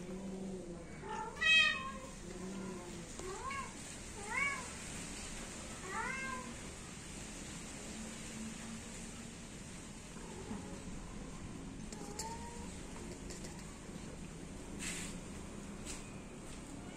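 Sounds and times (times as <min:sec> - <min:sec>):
cat meowing: 0:01.0 - 0:04.7, 0:05.8 - 0:06.5.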